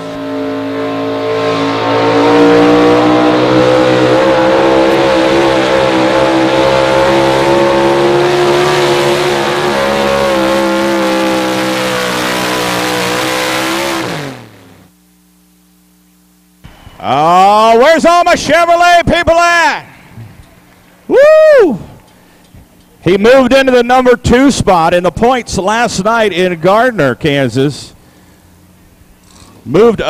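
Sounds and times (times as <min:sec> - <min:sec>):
truck engine at full throttle: 0:00.0 - 0:14.9.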